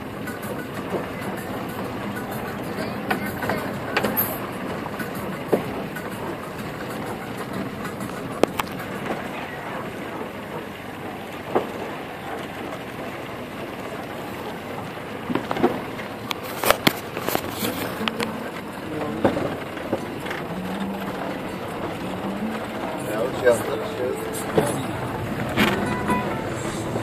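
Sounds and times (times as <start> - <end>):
tyres rumbling on dirt road: 0.0 - 27.0.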